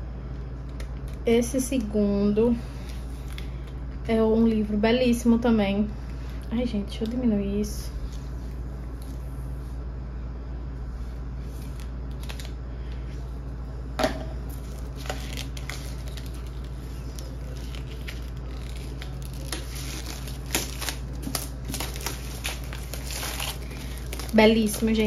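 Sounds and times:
steady low hum: 0:00.0 - 0:25.0
packaging crinkling: 0:11.5 - 0:12.6, 0:14.4 - 0:25.0.

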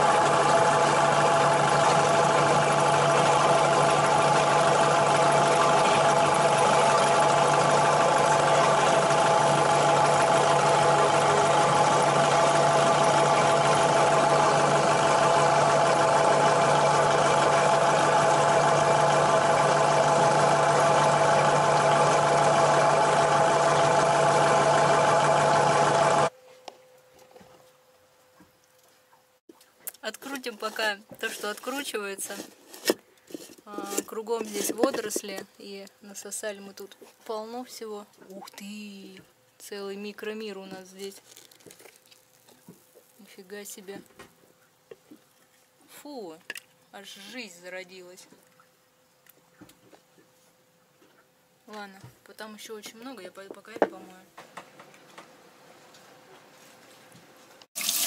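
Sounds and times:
diesel engine idling: 0:00.0 - 0:26.3.

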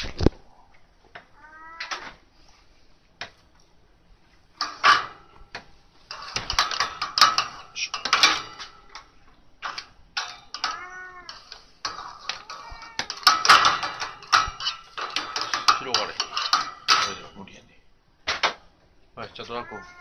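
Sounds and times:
cat meowing: 0:01.4 - 0:02.0, 0:10.7 - 0:11.5, 0:12.4 - 0:13.3, 0:19.4 - 0:20.0
rattling and rustling: 0:04.2 - 0:17.6.

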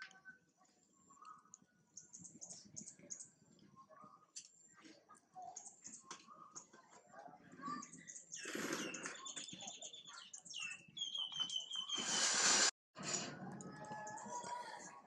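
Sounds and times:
small birds chirping: 0:00.0 - 0:12.7
quick whistled bird notes: 0:07.8 - 0:12.7.

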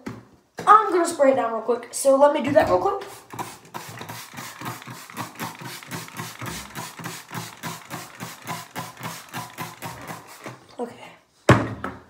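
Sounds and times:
trigger spray bottle spritzes: 0:03.1 - 0:10.6.

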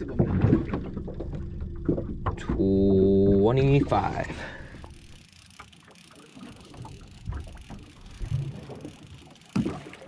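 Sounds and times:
water slapping against hull: 0:00.0 - 0:04.9, 0:05.5 - 0:10.0.

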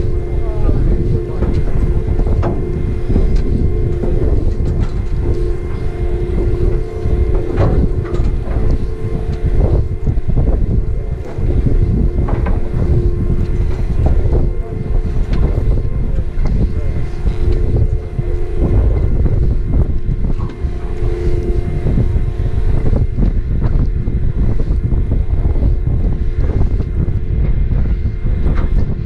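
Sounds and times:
boat engine droning: 0:00.0 - 0:29.0
wind buffeting microphone: 0:00.0 - 0:29.0.

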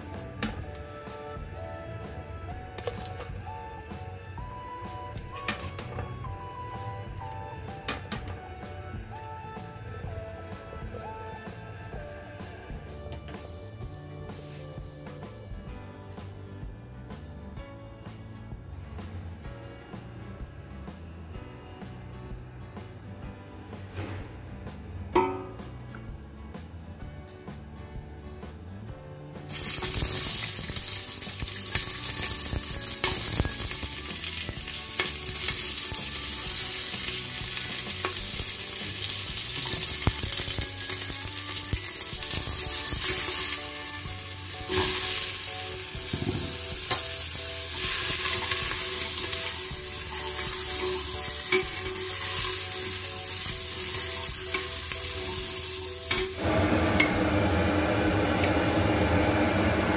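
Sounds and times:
vegetables sizzling in a pot: 0:29.5 - 0:59.9
extractor fan whirring: 0:41.2 - 0:59.9.

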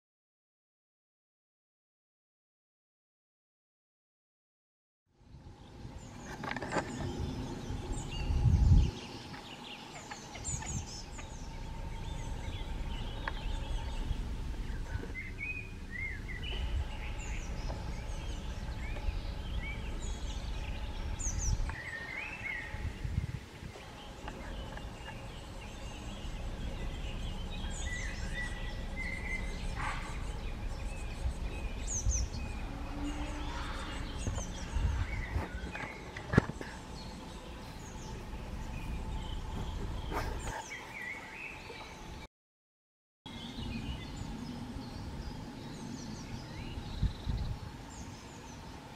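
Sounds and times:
faint steady hum: 0:05.2 - 0:42.3
birds chirping and whistling: 0:05.6 - 0:42.2, 0:43.3 - 0:48.9
low rumbling bursts: 0:07.0 - 0:40.6.

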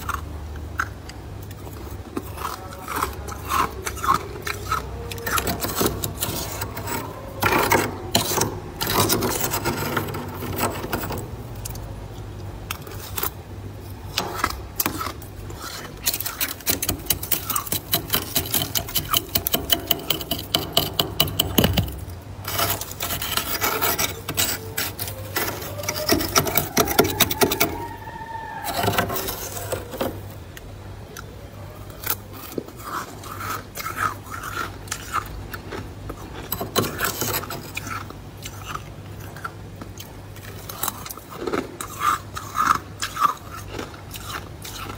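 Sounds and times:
frost being scraped: 0:02.3 - 0:11.3, 0:14.1 - 0:30.3
rising and falling squeak: 0:25.0 - 0:30.3.

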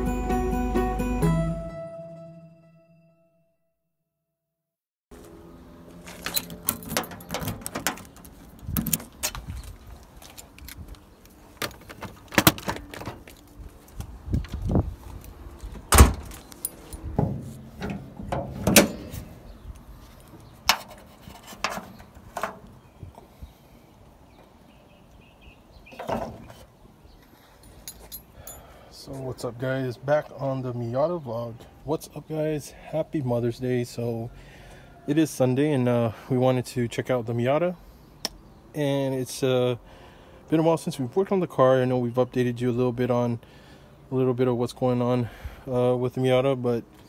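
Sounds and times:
keys jangling in door lock: 0:06.2 - 0:09.1
car door clicks and clunks: 0:15.8 - 0:16.4.

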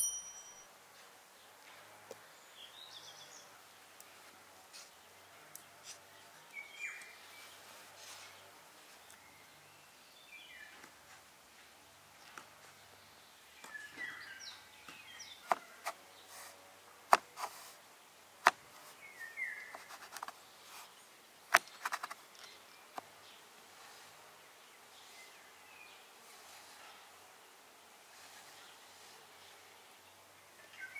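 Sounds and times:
birds chirping: 0:04.8 - 0:11.1, 0:12.1 - 0:16.5, 0:18.4 - 0:30.9.

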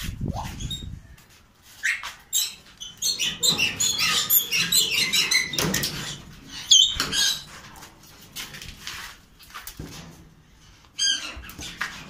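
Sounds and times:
caged birds chirping: 0:00.1 - 0:08.3.

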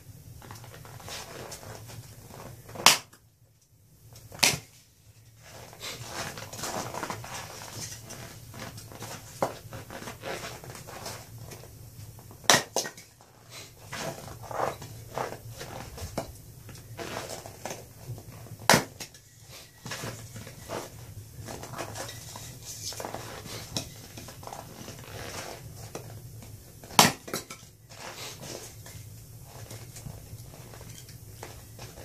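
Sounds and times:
axe splitting wood: 0:02.8 - 0:03.1, 0:04.4 - 0:04.6, 0:12.5 - 0:13.0, 0:18.7 - 0:19.1, 0:26.9 - 0:27.6.

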